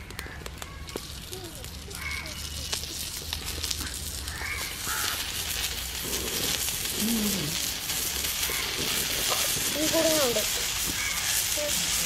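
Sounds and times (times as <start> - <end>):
prawn sizzling on hot pan: 0.0 - 12.0
wood fire crackling: 0.0 - 12.0
crow cawing: 2.0 - 2.4, 3.8 - 5.2, 11.0 - 11.4.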